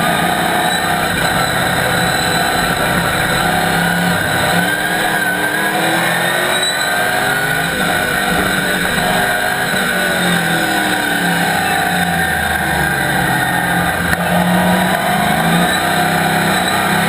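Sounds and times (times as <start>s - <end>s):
race car engine revving: 0.0s - 17.0s.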